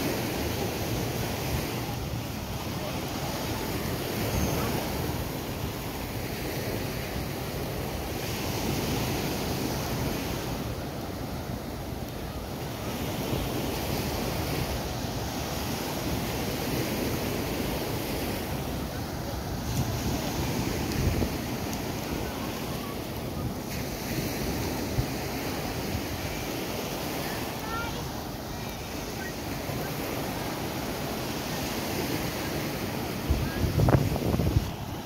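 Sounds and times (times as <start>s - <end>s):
surf washing onto beach: 0.0s - 35.0s
wind buffeting microphone: 12.8s - 35.0s.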